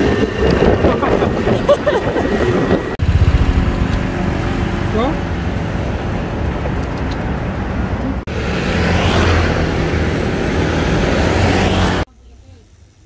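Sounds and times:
vehicle engine passing: 0:00.0 - 0:12.1.

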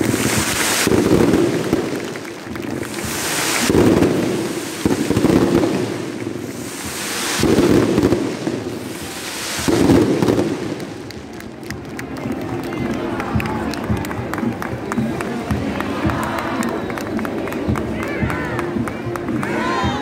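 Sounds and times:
fireworks bangs: 0:00.0 - 0:12.4.

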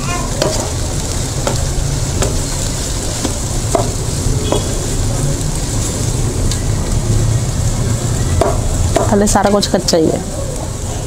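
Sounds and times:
vegetables sizzling in a wok: 0:00.0 - 0:11.0.

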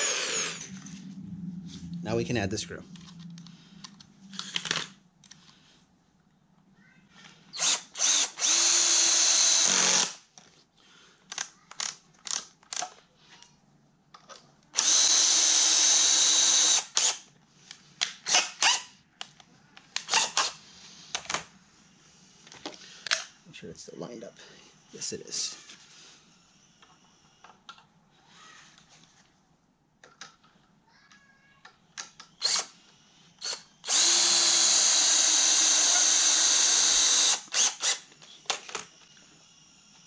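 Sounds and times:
cordless drill driving screw into wood: 0:00.0 - 0:00.7, 0:07.6 - 0:10.2, 0:14.8 - 0:17.3, 0:18.0 - 0:18.9, 0:20.0 - 0:21.4, 0:32.0 - 0:32.8, 0:33.4 - 0:38.9
drill motor bursts: 0:00.0 - 0:00.7, 0:07.6 - 0:10.2, 0:14.8 - 0:17.2, 0:32.4 - 0:32.8, 0:33.4 - 0:38.1.

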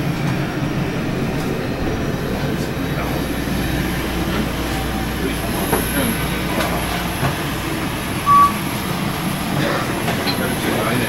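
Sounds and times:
machinery rumble: 0:00.0 - 0:11.0
faint high whine: 0:08.2 - 0:08.6
short beep: 0:08.2 - 0:08.6.

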